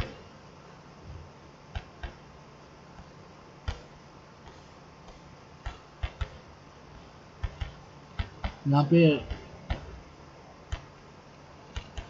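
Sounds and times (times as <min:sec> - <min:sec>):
faint low hum: 0:00.0 - 0:12.0
computer mouse clicking: 0:01.7 - 0:02.2, 0:03.0 - 0:06.4, 0:07.4 - 0:08.6, 0:10.7 - 0:10.9, 0:11.7 - 0:12.0.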